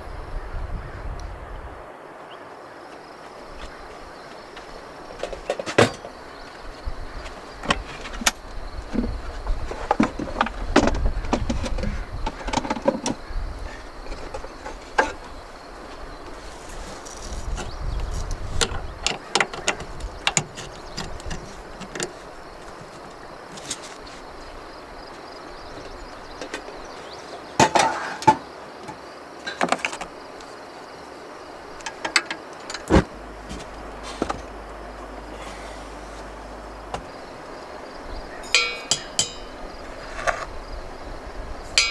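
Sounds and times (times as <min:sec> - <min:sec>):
steady background noise: 0:00.0 - 0:41.9
metal pot clinking: 0:38.4 - 0:39.6.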